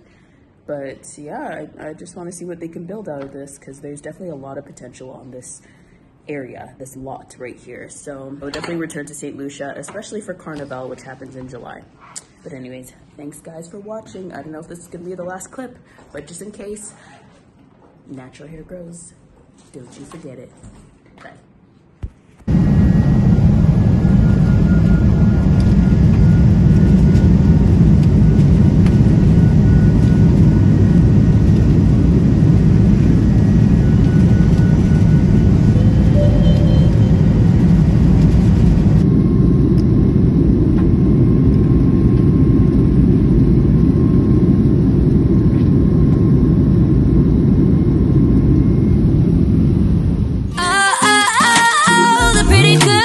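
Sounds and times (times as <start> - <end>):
jet cabin engine and air noise: 22.4 - 53.0.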